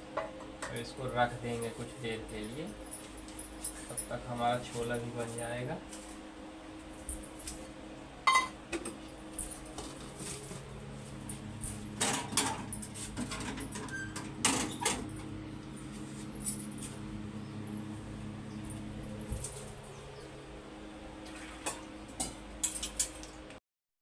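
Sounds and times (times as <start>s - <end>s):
steady low hum: 0.0s - 23.6s
kitchen utensils and dishes clinking: 8.3s - 8.6s, 21.5s - 23.3s.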